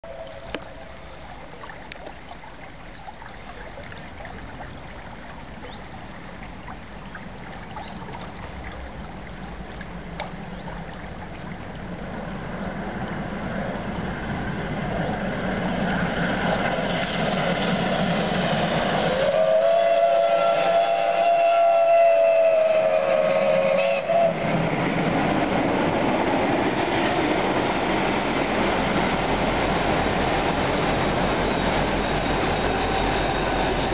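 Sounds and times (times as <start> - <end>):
steam train running: 13.3 - 33.9
steam whistle blast: 19.0 - 24.4.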